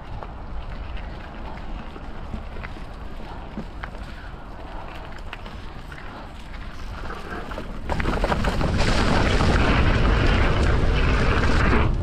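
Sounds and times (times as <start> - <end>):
bike tyres rolling on dirt: 0.0 - 12.0
wind rushing over microphone: 4.4 - 12.0.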